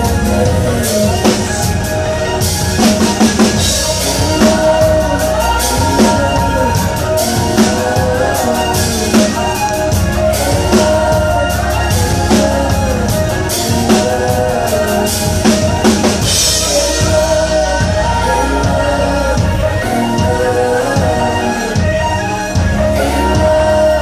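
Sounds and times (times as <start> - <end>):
live electropop band: 0.0 - 24.0
woman singing lead: 0.0 - 24.0.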